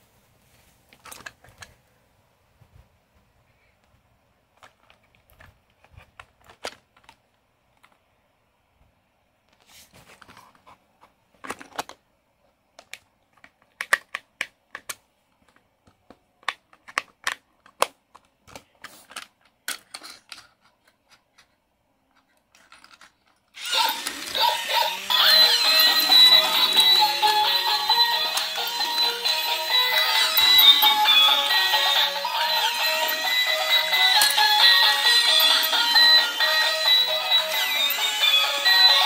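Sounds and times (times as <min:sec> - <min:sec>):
loud electronic toy music: 0:23.6 - 0:39.0.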